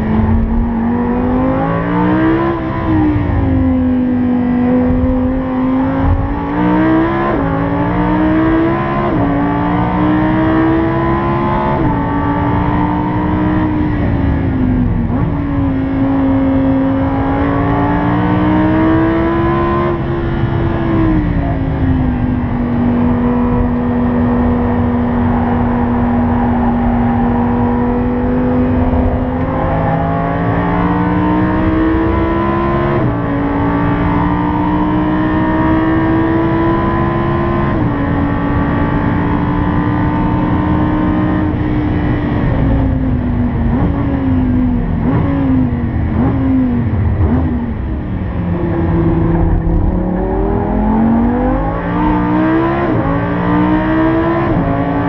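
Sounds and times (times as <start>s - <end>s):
car engine shifting gears: 0.0s - 55.0s
engine throttle blips: 20.0s - 33.6s, 41.5s - 53.6s.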